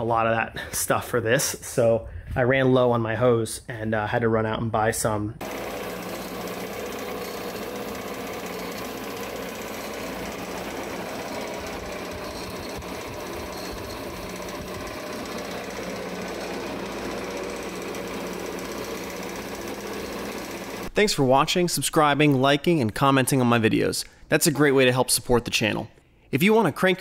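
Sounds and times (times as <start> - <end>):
metal-cutting bandsaw running: 5.4 - 20.9.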